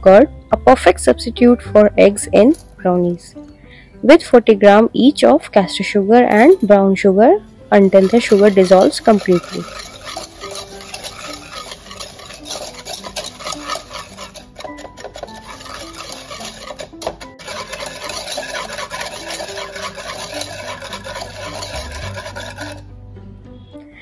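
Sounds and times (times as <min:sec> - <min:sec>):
whisk scraping and tapping bowl: 0:07.7 - 0:22.9.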